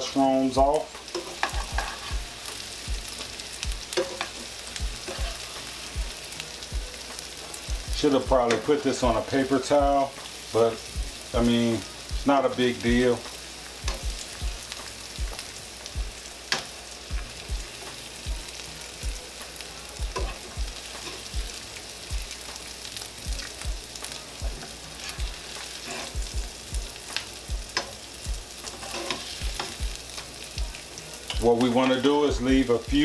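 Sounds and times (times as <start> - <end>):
vegetables sizzling in a frying pan: 0.0 - 33.0
metal tongs knocking on pan: 1.1 - 2.1, 3.9 - 4.4.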